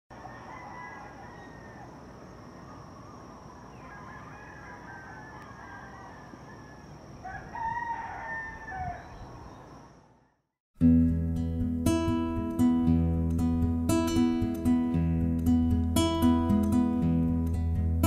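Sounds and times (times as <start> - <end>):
roosters crowing: 0.1 - 10.3
acoustic guitar: 10.8 - 18.0.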